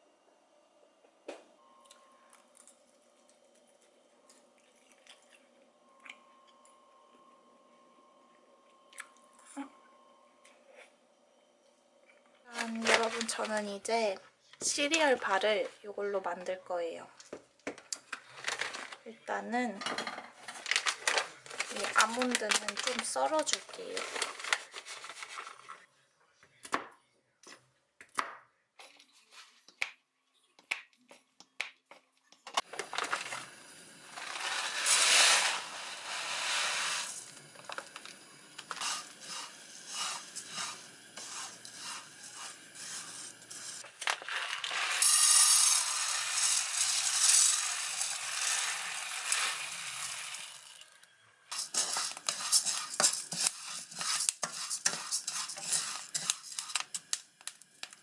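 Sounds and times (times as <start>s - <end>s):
oats rattling in frying pan: 20.4s - 25.6s, 32.6s - 58.0s
wooden spatula scraping pan: 38.6s - 44.6s, 51.5s - 57.1s.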